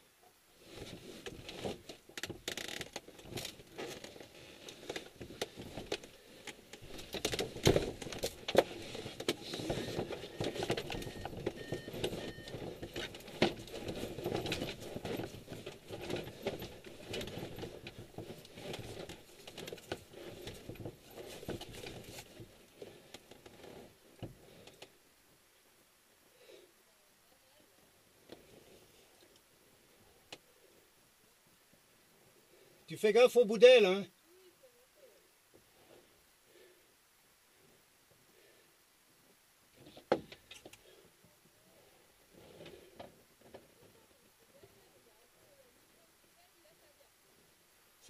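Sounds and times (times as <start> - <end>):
rustling and clattering: 0.6 - 25.0, 39.7 - 41.1, 41.8 - 45.1.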